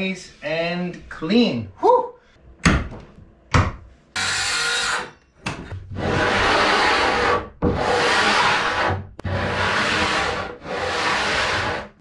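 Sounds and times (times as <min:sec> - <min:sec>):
circular saw cutting wood: 0:04.2 - 0:05.1.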